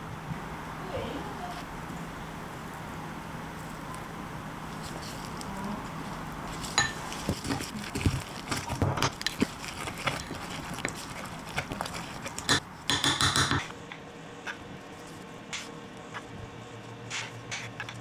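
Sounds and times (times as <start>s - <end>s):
spoon scraping batter: 6.4s - 12.6s, 17.0s - 18.0s.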